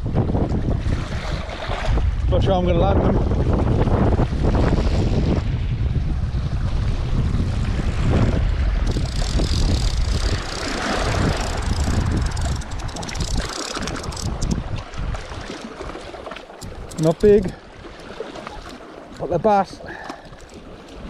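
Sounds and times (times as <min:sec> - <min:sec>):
wind buffeting microphone: 0:00.0 - 0:21.0
sea water washing against rocks: 0:06.6 - 0:21.0.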